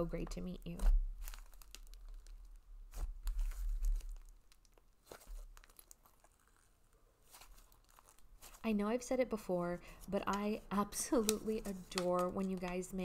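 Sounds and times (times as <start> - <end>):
slime crackling and popping: 0.8 - 8.6.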